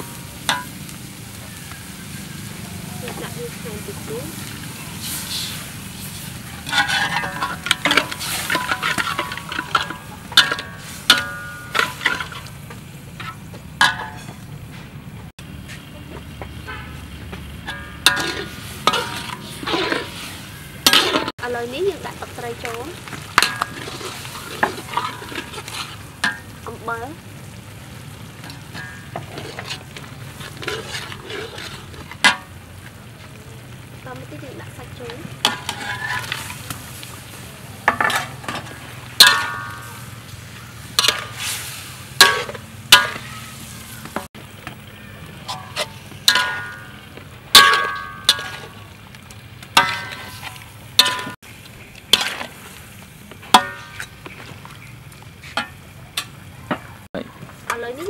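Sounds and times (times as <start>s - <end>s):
frying sizzle: 0.0s - 58.0s
metal spatula striking a wok: 0.1s - 0.8s, 6.6s - 12.5s, 13.2s - 14.5s, 17.5s - 21.3s, 22.1s - 26.8s, 28.3s - 32.6s, 35.4s - 37.1s, 37.8s - 44.7s, 45.4s - 48.9s, 49.8s - 51.4s, 52.1s - 52.7s, 53.4s - 54.2s.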